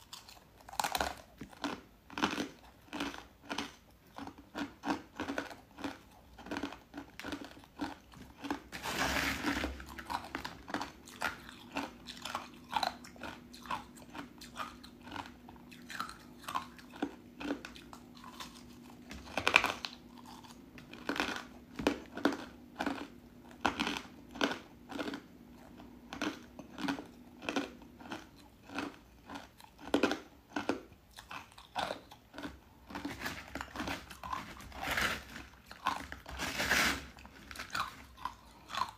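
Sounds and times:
crunching and chewing ice: 0:00.0 - 0:38.9.

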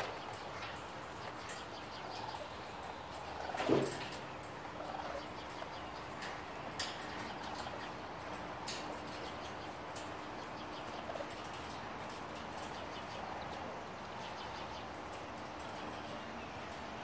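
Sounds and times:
raccoon kits chirping: 0:00.0 - 0:06.3.

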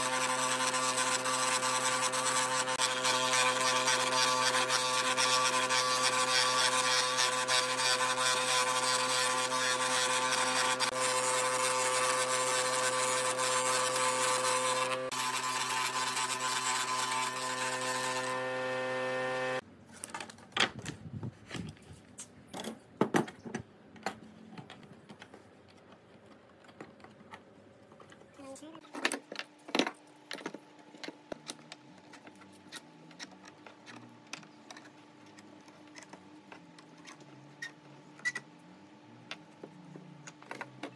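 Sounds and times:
table saw cutting wood: 0:00.0 - 0:19.6.

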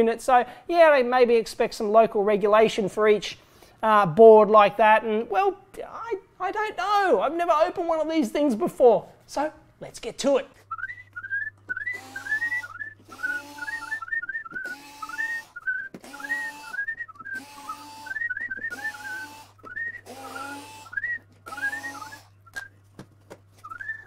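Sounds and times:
high chirping whistle: 0:10.7 - 0:22.7
cordless screwdriver whirring: 0:11.9 - 0:14.0, 0:14.6 - 0:16.8, 0:17.4 - 0:22.3.

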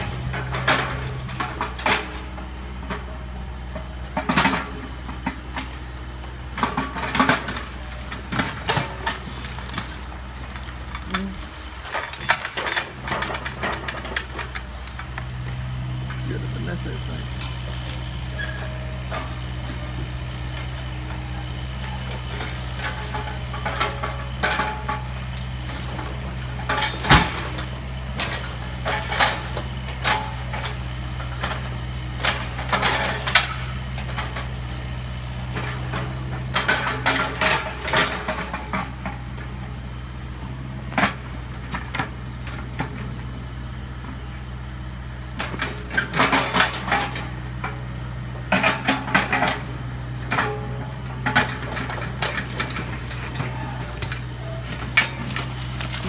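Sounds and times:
excavator diesel engine running: 0:00.0 - 0:56.0
debris knocking and cracking: 0:06.6 - 0:15.5, 0:51.2 - 0:56.0.

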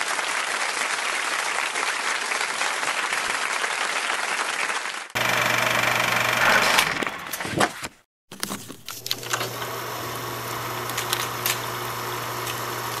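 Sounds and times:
film projector whirring hiss: 0:05.2 - 0:07.0, 0:08.9 - 0:13.0.

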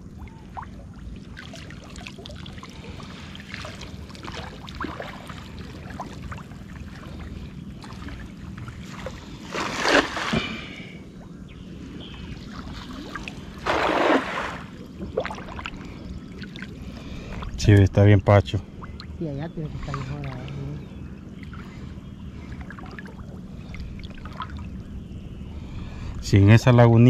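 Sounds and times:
low background rumble: 0:00.0 - 0:27.0
loud water splashes: 0:09.5 - 0:10.8, 0:12.8 - 0:15.7.

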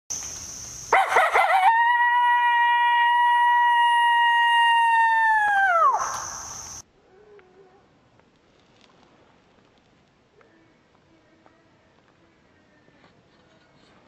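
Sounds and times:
coyote yipping and howling: 0:00.9 - 0:06.4.

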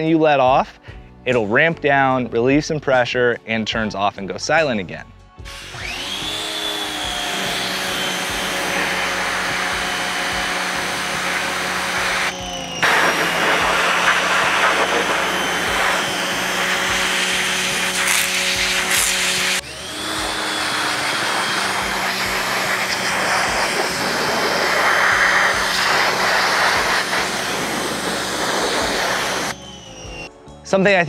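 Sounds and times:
pressure washer motor whine: 0:05.4 - 0:30.4
water spray hissing: 0:08.0 - 0:19.6, 0:20.2 - 0:29.5.

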